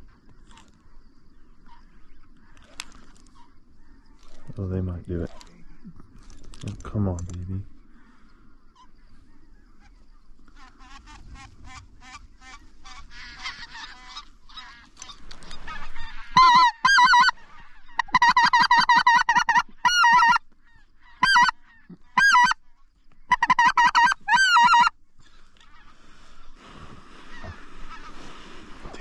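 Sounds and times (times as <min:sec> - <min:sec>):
geese honking: 0:07.9 - 0:22.6, 0:23.2 - 0:26.5, 0:27.2 - 0:28.4.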